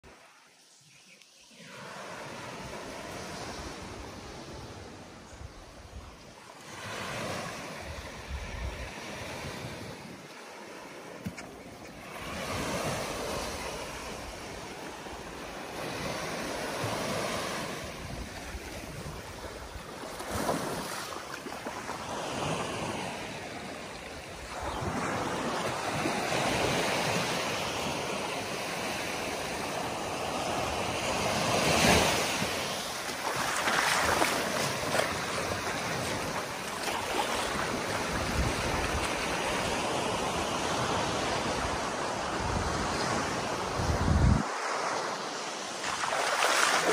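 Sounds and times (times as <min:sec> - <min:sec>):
small waves breaking on sand: 0:00.0 - 0:46.9
wind buffeting microphone: 0:33.6 - 0:39.8, 0:40.7 - 0:44.6.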